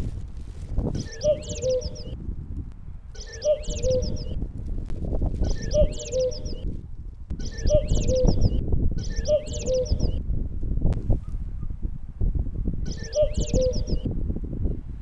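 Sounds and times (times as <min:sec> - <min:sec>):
high falling bird chirps: 0:00.9 - 0:02.2, 0:03.2 - 0:04.4, 0:05.4 - 0:06.7, 0:07.4 - 0:10.2, 0:12.9 - 0:14.1
low bird cooing: 0:01.0 - 0:02.2, 0:03.2 - 0:04.4, 0:05.4 - 0:06.7, 0:07.4 - 0:10.2, 0:12.9 - 0:14.1.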